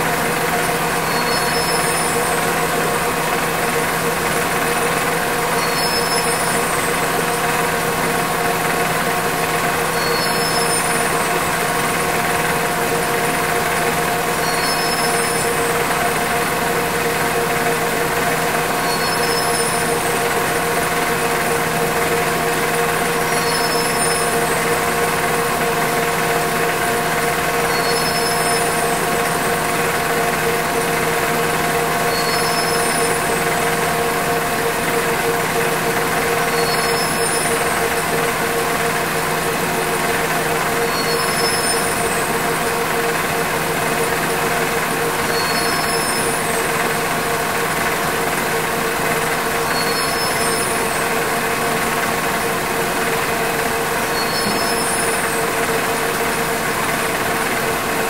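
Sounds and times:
faint high-pitched chirp: 1.0s - 2.4s, 5.6s - 6.9s, 9.9s - 11.2s, 14.4s - 15.6s, 18.8s - 20.0s, 23.3s - 24.4s, 27.7s - 29.0s, 32.1s - 33.3s, 36.5s - 37.7s, 40.9s - 42.0s, 45.3s - 46.5s, 49.7s - 50.9s, 54.1s - 55.5s.

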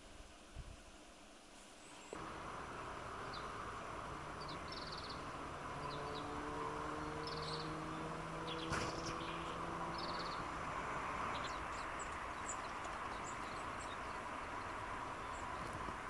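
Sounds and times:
steady low hum: 2.1s - 16.0s
finch chirping and trilling: 3.2s - 3.5s, 4.3s - 10.5s.

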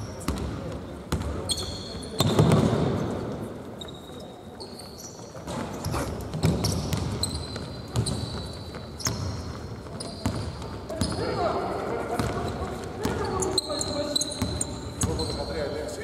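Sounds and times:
sneakers squeaking on floor: 0.0s - 16.0s
basketball dribbling on court: 5.5s - 11.3s.

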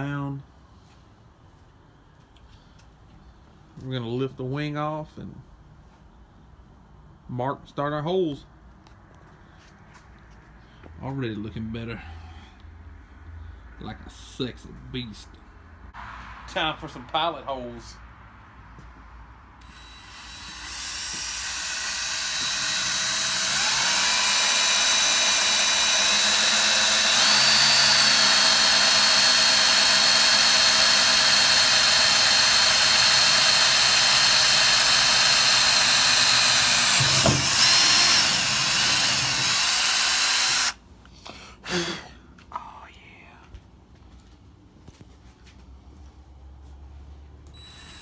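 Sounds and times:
drill whining through sheet metal: 19.6s - 40.8s, 47.6s - 48.0s.

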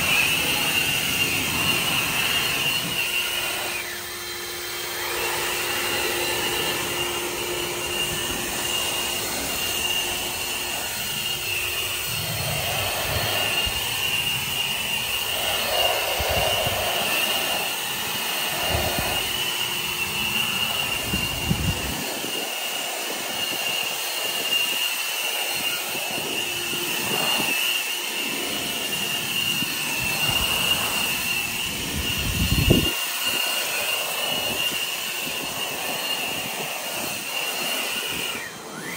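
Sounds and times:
electric blowers whining: 0.0s - 38.9s
low gusts of air: 6.3s - 22.6s, 29.4s - 33.0s.

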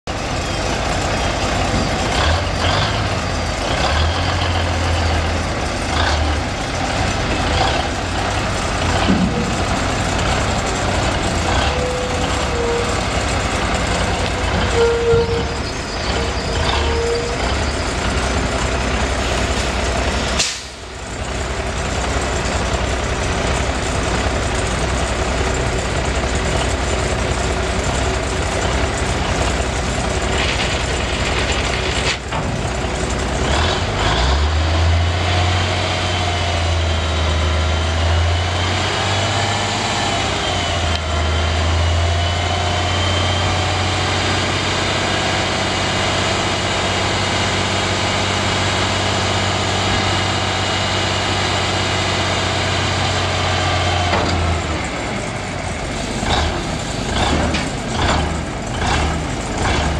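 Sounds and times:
truck diesel engine running: 0.1s - 59.9s
sharp click or hiss: 20.4s - 20.8s.

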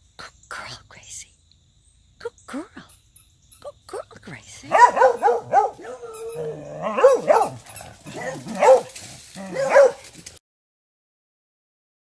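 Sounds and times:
hound barking and baying: 4.6s - 10.4s.

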